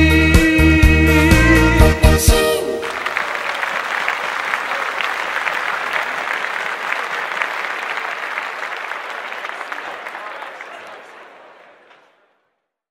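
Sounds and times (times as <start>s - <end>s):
audience applauding: 2.3s - 12.5s.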